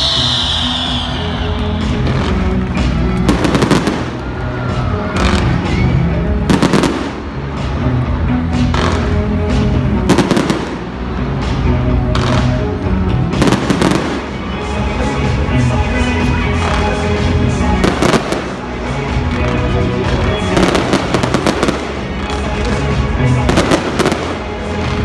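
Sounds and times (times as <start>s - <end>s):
loud music: 0.0s - 25.0s
fireworks popping and crackling: 1.9s - 4.5s, 6.5s - 7.2s, 19.2s - 22.6s.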